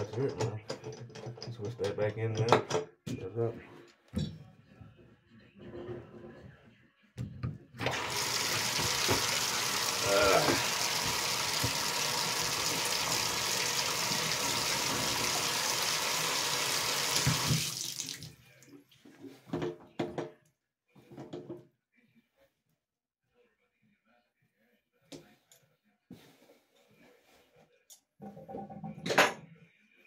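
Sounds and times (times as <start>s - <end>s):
water splashing into bathtub: 7.8s - 18.8s.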